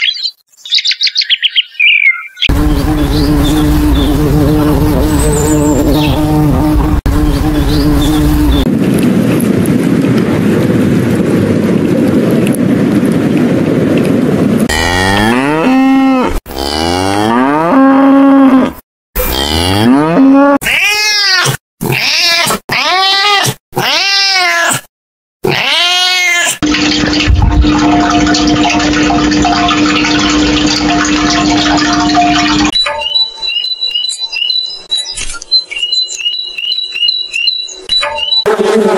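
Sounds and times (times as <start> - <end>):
wasp buzzing: 2.5 - 8.7
cow mooing: 14.7 - 20.6
cat meowing: 20.6 - 26.6.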